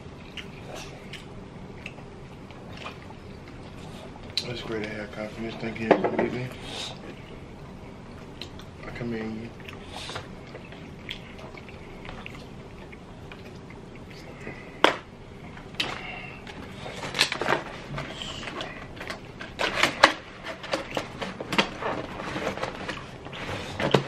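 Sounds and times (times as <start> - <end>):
mouth chewing noises: 0.1 - 5.6, 6.5 - 19.4.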